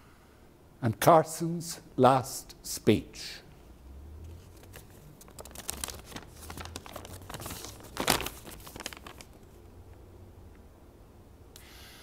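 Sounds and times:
paper crinkling: 4.3 - 9.7.

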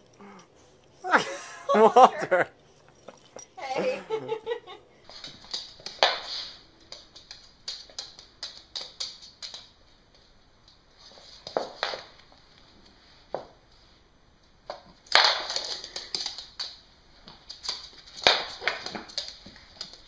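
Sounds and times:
clicks and taps on hardwood floor: 5.1 - 12.7, 14.6 - 20.0.

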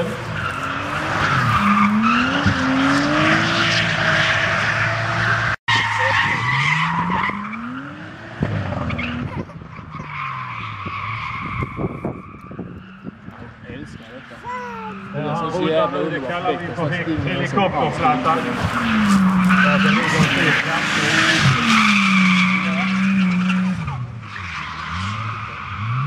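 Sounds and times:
car engine revving: 0.0 - 13.9, 15.1 - 26.0.

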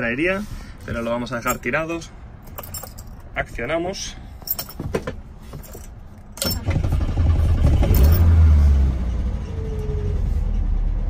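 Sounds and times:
car engine starting and idling: 4.5 - 11.0.

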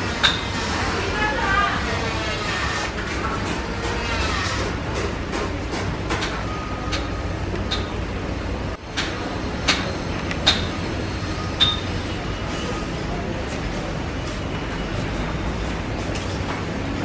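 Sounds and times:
hammer striking metal: 11.6 - 11.9.

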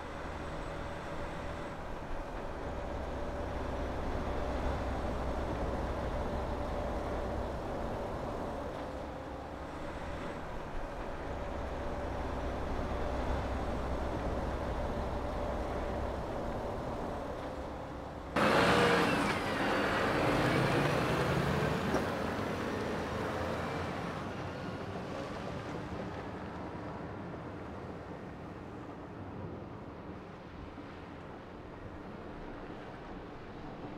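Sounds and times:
diesel truck engine running: 0.0 - 23.4.

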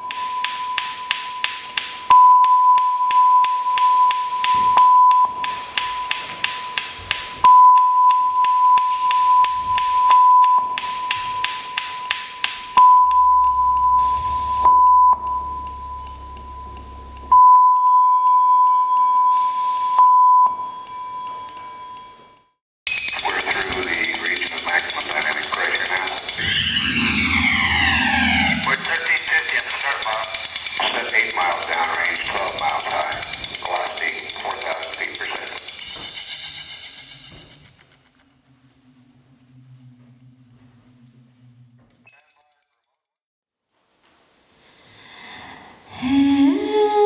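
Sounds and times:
rapid ticking clicks: 22.9 - 26.4, 28.6 - 36.7
high electronic beeping tone: 22.9 - 42.5
low electronic hum: 26.4 - 28.8.

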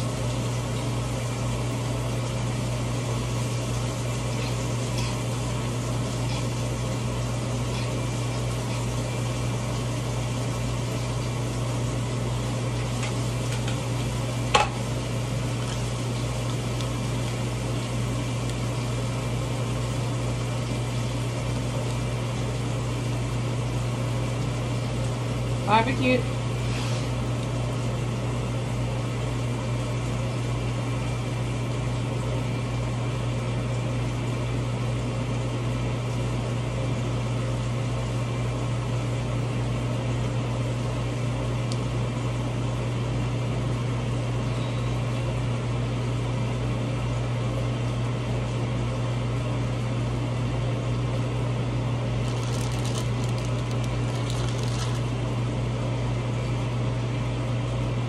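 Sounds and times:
kitchen appliance humming: 0.0 - 58.0
plastic packet crinkling: 52.2 - 55.2.

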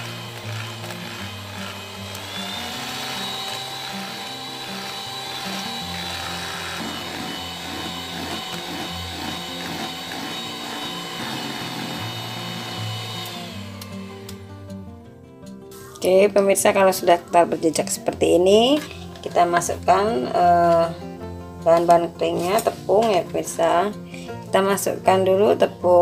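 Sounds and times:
electric hand mixer whine: 0.0 - 14.9
background music: 0.0 - 26.0.

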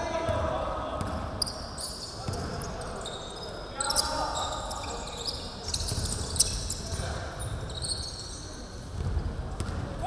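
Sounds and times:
sneakers squeaking: 1.0 - 10.0
basketball bouncing: 9.0 - 9.8.

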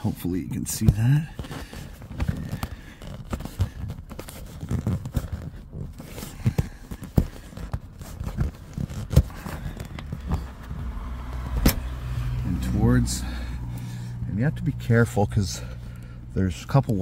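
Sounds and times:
fingers rubbing car seat: 0.8 - 12.2.

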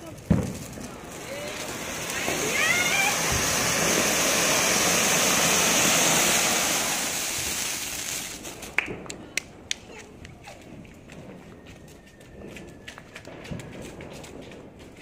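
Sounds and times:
firework fountain hissing: 0.0 - 11.1
firework cracks and pops: 0.0 - 15.0.

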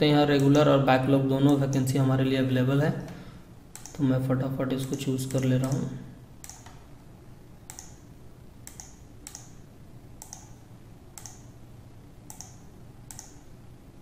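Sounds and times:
computer mouse clicking: 3.7 - 4.0, 4.8 - 6.9, 7.6 - 8.0, 8.6 - 9.6, 10.2 - 11.6, 12.3 - 13.5.

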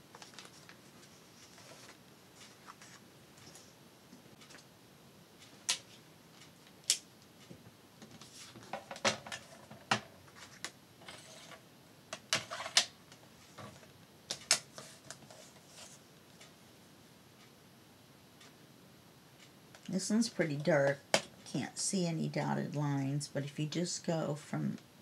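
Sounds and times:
paper rustling: 0.0 - 3.6.

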